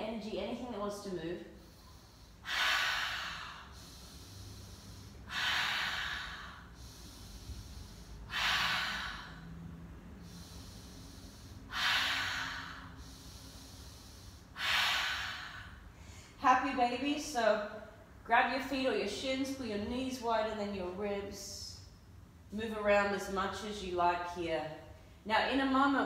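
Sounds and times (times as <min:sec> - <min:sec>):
woman breathing out forcefully: 0:01.5 - 0:16.4.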